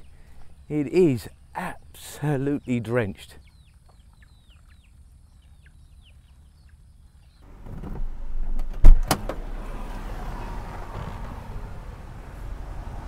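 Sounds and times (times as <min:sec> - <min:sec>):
car noise: 0:07.4 - 0:13.0.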